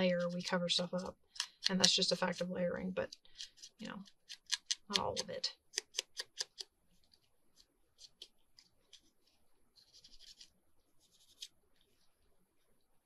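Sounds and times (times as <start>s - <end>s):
paper rustling: 6.0s - 12.3s.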